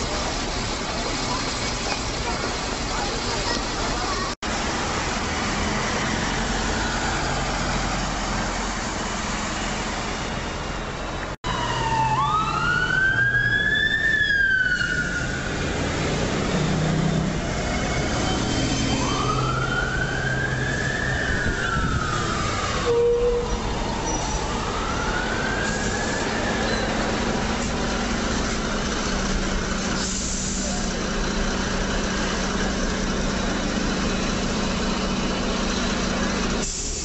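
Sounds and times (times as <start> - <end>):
bus engines: 0.0 - 37.0
busy road traffic: 0.0 - 37.0
emergency vehicle siren wailing: 11.4 - 28.1.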